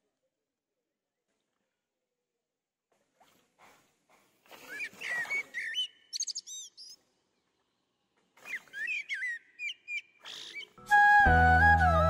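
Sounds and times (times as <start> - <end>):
birds chirping: 4.4 - 10.8.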